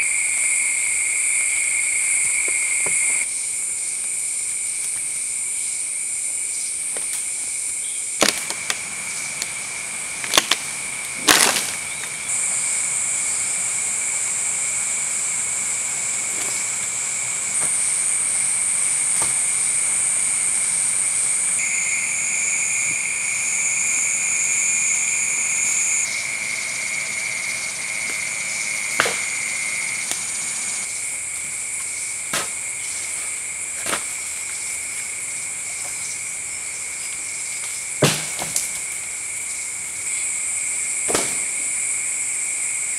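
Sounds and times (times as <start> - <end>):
shrill insect chorus: 0.0 - 42.9
wooden knocks and cracks: 38.0 - 38.8.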